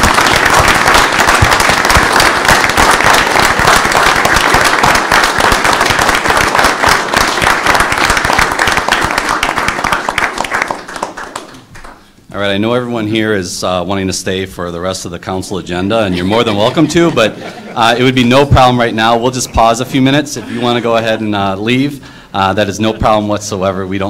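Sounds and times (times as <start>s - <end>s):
audience applause: 0.0s - 12.0s.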